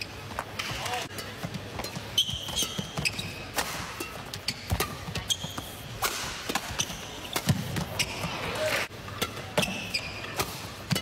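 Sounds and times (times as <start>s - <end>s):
rackets striking shuttlecock: 1.1s - 7.9s
shoes squeaking on floor: 1.6s - 5.9s, 6.6s - 8.5s, 9.6s - 10.4s.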